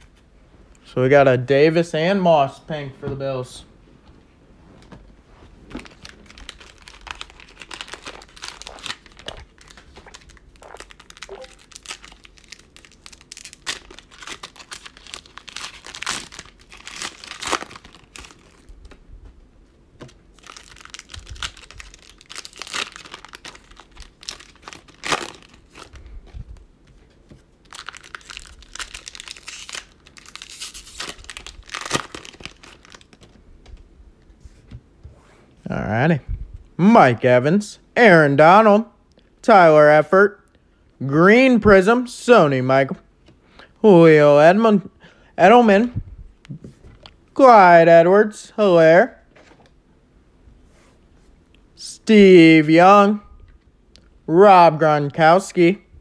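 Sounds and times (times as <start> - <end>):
wrappers crinkling and tearing: 5.7 - 19.0, 20.3 - 26.2, 27.6 - 33.4.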